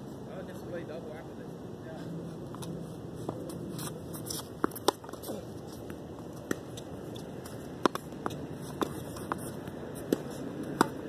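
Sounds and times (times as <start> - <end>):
background noise: 0.0 - 11.0
tennis ball bouncing on hard court: 4.2 - 11.0
tennis ball struck by rackets: 4.2 - 11.0.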